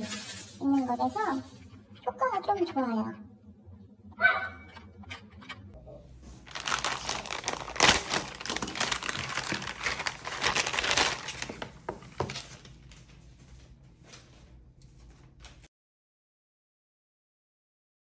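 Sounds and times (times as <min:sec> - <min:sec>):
plastic bag crinkling: 0:06.4 - 0:13.0.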